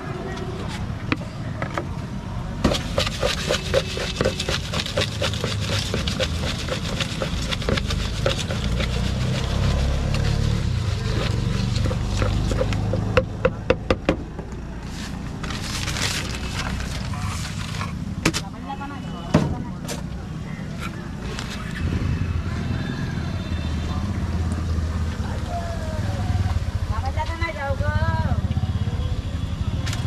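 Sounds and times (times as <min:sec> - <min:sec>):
spoon scraping in plastic mug: 0:02.7 - 0:13.6
sharp knocks: 0:11.8 - 0:14.4.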